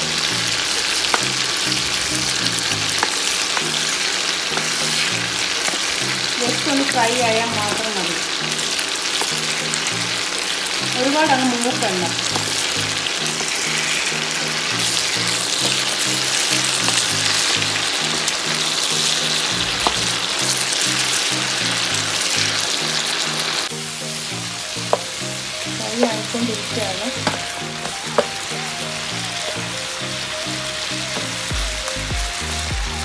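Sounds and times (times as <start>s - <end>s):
chicken frying in hot oil: 0.0s - 33.0s
wooden spoon knocking on pan: 19.7s - 20.2s, 27.2s - 28.4s.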